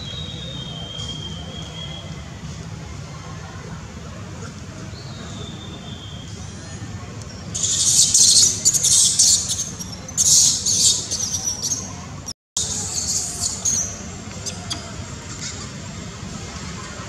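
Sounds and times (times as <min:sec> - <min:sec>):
young monkey screaming: 0:07.6 - 0:12.0, 0:12.6 - 0:14.9.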